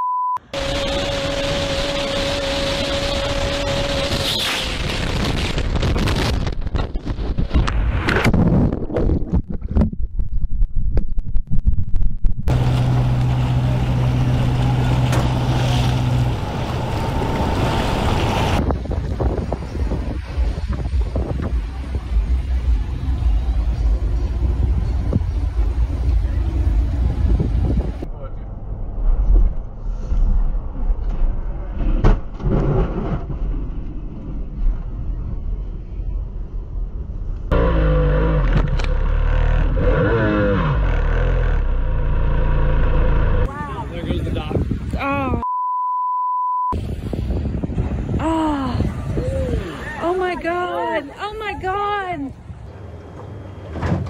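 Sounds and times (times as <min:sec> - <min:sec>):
low engine hum: 0:00.4 - 0:06.9, 0:12.2 - 0:44.9
rush of wind and water: 0:00.6 - 0:09.4, 0:12.5 - 0:28.1, 0:46.7 - 0:52.8
wind buffeting microphone: 0:00.7 - 0:12.7, 0:16.2 - 0:28.1, 0:43.4 - 0:45.4, 0:46.8 - 0:52.8
trailer crashing onto road: 0:31.7 - 0:34.5.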